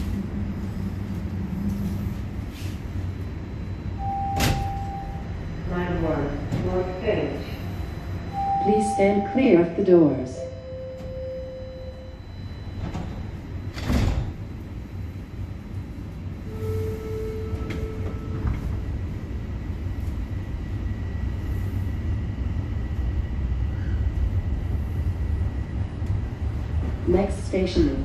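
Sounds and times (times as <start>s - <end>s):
high whine of train: 0.0s - 28.0s
train rumble: 0.0s - 28.0s
train doors sliding shut: 4.0s - 5.3s, 12.7s - 14.8s, 16.6s - 19.0s.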